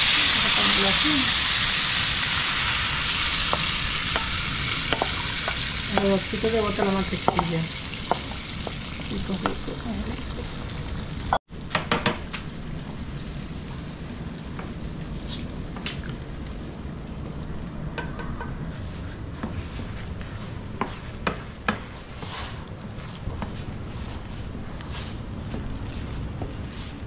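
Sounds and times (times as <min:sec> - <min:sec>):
eggs sizzling in a frying pan: 0:00.0 - 0:11.4
utensil tapping on pan: 0:03.4 - 0:10.6, 0:18.0 - 0:18.6.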